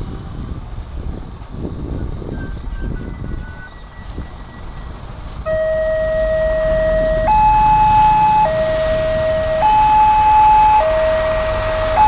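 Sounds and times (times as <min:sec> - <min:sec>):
road traffic rumbling: 0:00.0 - 0:12.0
level crossing alarm tone: 0:05.5 - 0:12.0.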